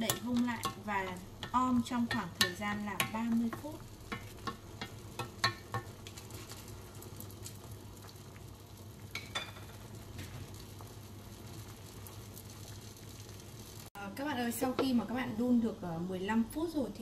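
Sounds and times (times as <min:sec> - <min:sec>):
wooden spoon knocking pot: 0:00.0 - 0:05.9
liquid simmering in pot: 0:00.0 - 0:15.6.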